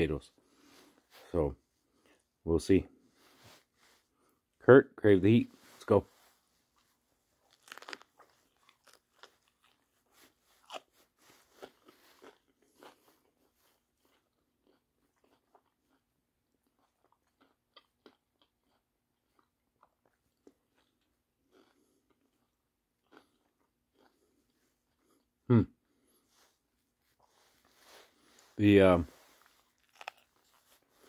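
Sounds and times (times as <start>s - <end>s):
crunchy biting and chewing: 7.4s - 25.3s, 29.3s - 31.0s.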